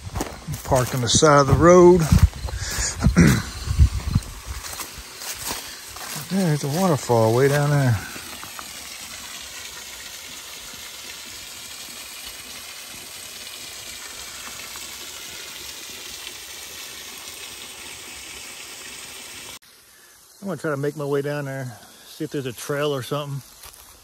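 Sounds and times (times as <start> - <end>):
waterfall rushing: 0.0 - 16.1.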